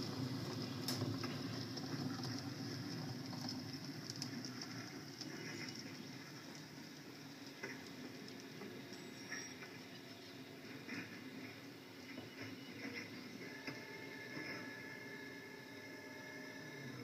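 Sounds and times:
model train rumbling on track: 0.0 - 14.9.

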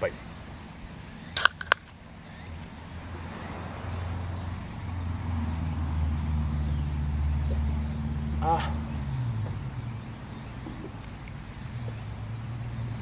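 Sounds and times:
vehicle engine drone: 0.0 - 13.0
beer can cracking open: 1.4 - 1.9
quick clicks: 1.4 - 1.9.

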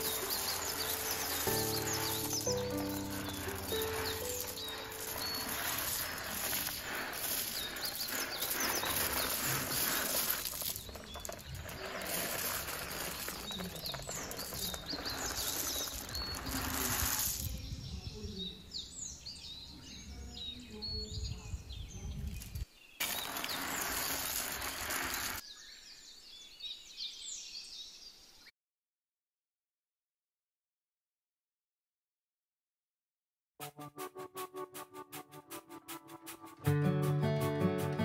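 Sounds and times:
small birds chirping: 0.0 - 28.5.

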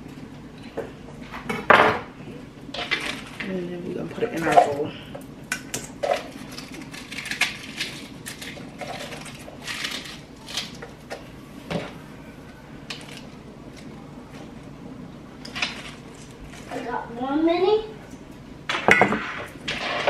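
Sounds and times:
lettuce rustling: 6.0 - 11.2, 15.4 - 17.1.

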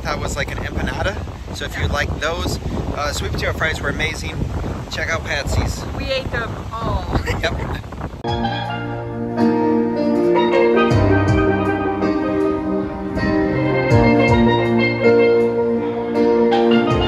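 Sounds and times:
bass notes: 7.8 - 17.0
drum beats: 8.2 - 17.0
steel pan melody: 8.2 - 17.0.

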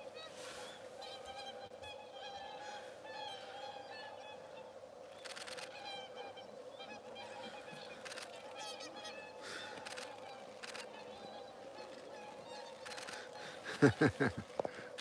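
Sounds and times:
swans honking: 0.0 - 15.0.

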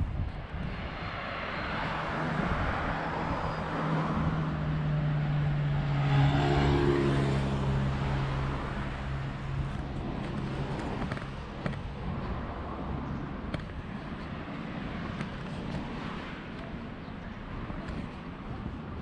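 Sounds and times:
tyre and traffic noise: 0.0 - 19.0
vehicle engine passing: 3.0 - 11.4.

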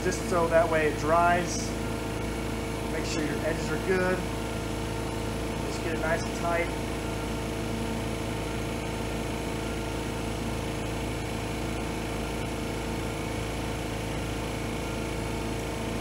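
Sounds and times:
steady mechanical hum: 0.0 - 16.0.

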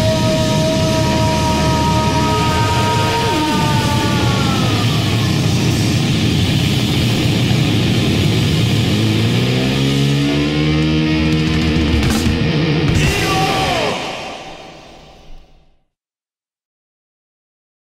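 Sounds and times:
guitar slide: 0.0 - 6.8, 8.8 - 15.6
heavy metal band playing: 0.0 - 15.6.

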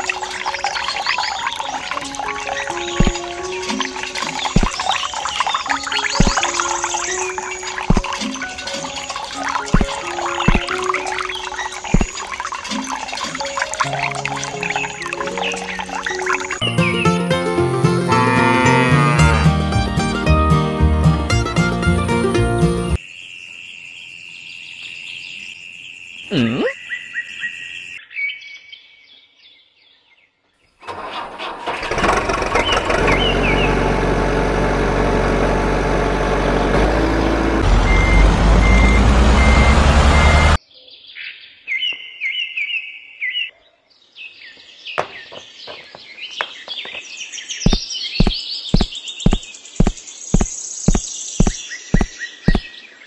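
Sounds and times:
birds chirping: 0.0 - 17.2, 24.4 - 28.6, 40.8 - 53.0
truck engine revving: 30.9 - 40.6
sharp knocks: 45.0 - 47.0.

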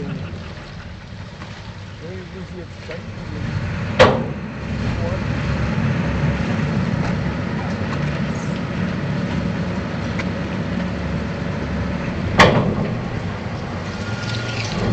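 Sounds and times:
boat engine rumbling: 0.0 - 14.9
steel ramp clanking on concrete: 12.3 - 14.9.

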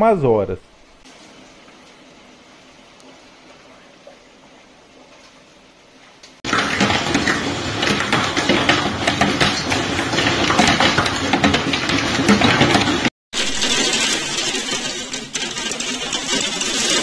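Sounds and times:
faint rain hiss: 0.0 - 6.4
hailstones striking hard surfaces: 6.5 - 17.0.

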